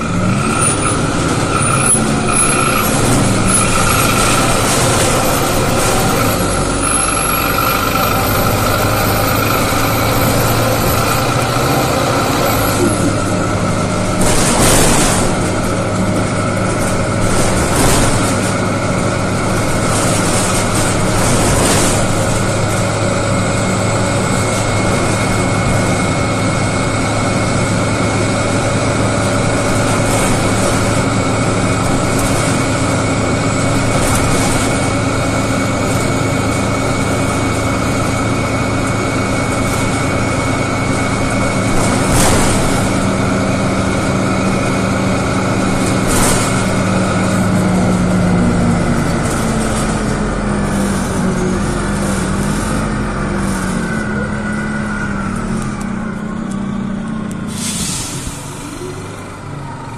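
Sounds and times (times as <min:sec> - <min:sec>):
bus engine drone: 0:00.0 - 0:59.9.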